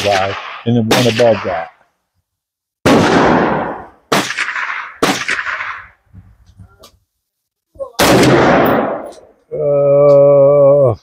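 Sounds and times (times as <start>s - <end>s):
rifle shots with echo: 0.0s - 1.7s, 2.8s - 6.0s, 8.0s - 9.3s.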